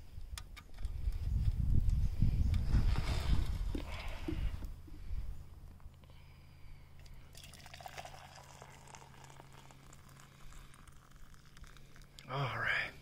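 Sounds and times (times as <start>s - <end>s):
tea pouring into steel cup: 7.0s - 12.6s.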